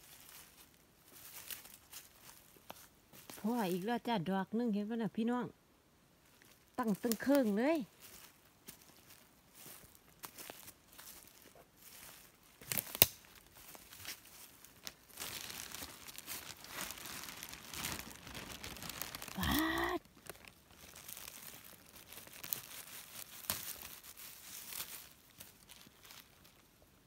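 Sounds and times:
rustling of dry leaves and twigs: 0.0s - 4.7s, 6.0s - 27.0s
twig cracking: 11.9s - 26.6s.

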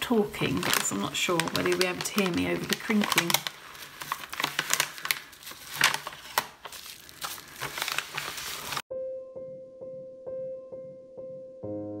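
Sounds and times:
paper wrapping crinkling: 0.0s - 8.8s
piano music: 8.9s - 12.0s.

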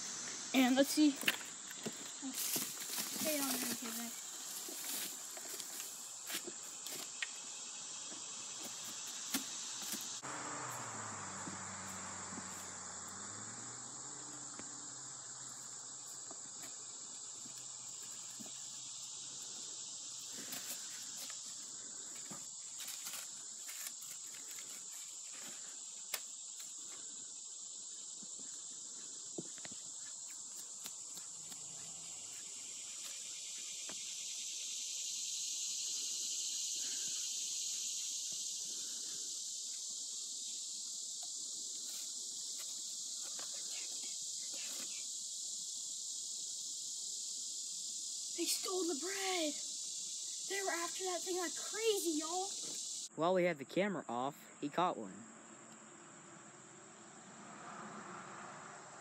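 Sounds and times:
insects chorus: 0.0s - 59.0s.

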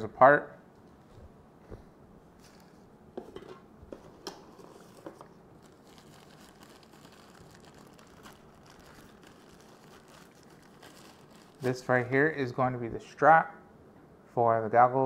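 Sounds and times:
packaging rustling: 4.5s - 12.0s.

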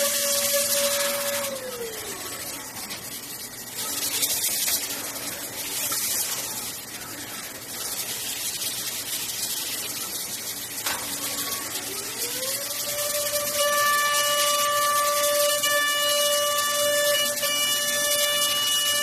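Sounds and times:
coolant spray and cutting hiss: 7.6s - 19.0s.

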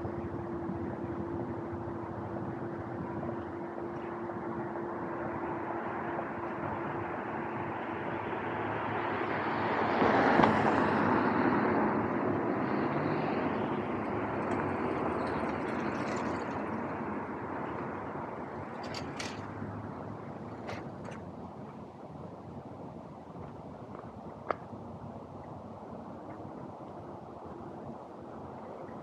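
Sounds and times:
street traffic: 0.0s - 29.0s
car passing close by: 5.4s - 20.8s.

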